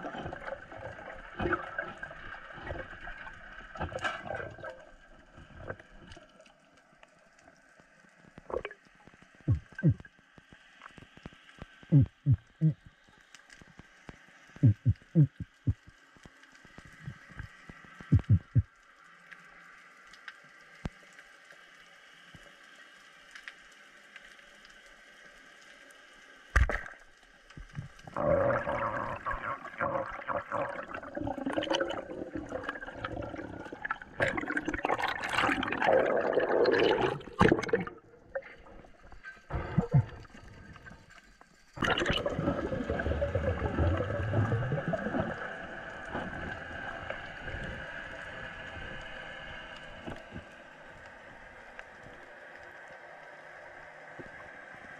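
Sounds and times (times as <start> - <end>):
water rushing and bubbling: 0.0 - 6.7, 8.2 - 10.2, 14.5 - 15.9, 16.7 - 18.8, 27.6 - 52.3
water sloshing and gurgling: 0.0 - 16.0, 16.6 - 18.8, 26.5 - 52.8.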